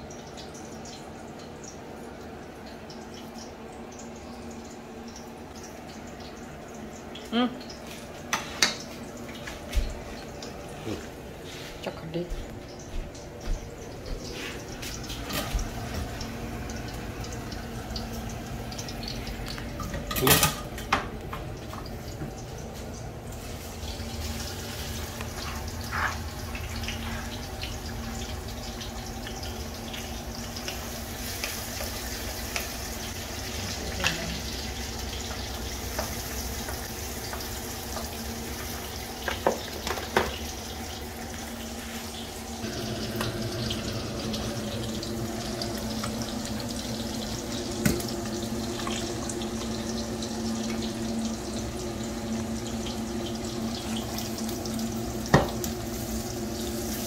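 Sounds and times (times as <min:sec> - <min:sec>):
food sizzling in oil: 0:13.7 - 0:20.9, 0:21.5 - 0:57.0.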